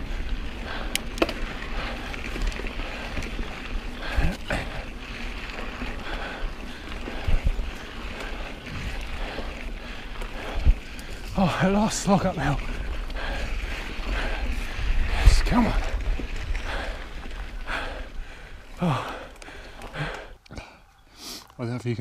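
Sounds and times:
bike knocking and rattling: 0.0 - 20.8
bike tyres rolling on dirt: 0.0 - 22.0
wind on microphone: 7.0 - 9.4, 12.6 - 17.7.

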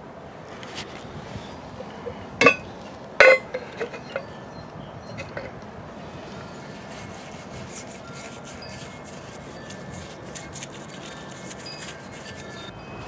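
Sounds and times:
tool clinking on metal wheel: 1.9 - 4.4, 5.1 - 5.6.

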